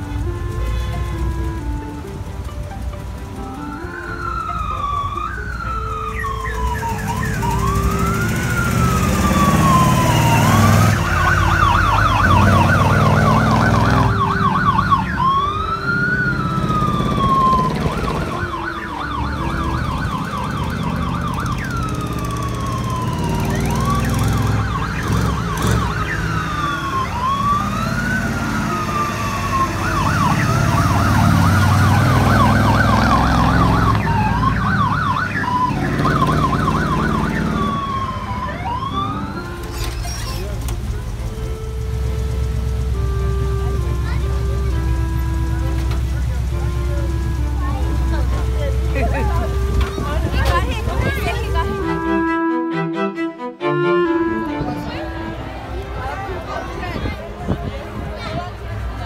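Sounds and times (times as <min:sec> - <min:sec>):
truck engine rumble: 0:00.0 - 0:59.0
electronic siren wailing and yelping: 0:03.9 - 0:40.5.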